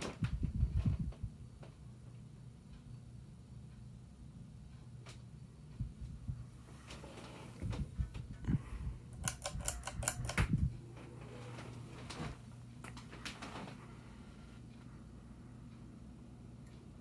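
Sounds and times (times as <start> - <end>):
ceiling fan motor humming: 0.0 - 17.0
pull chain clicks and rattles: 9.2 - 10.4.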